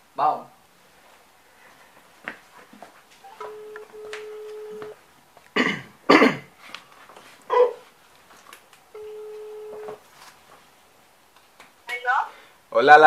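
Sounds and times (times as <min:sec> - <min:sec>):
phone ringback tone: 0:03.2 - 0:05.0, 0:08.9 - 0:10.0
person coughing: 0:05.6 - 0:06.5.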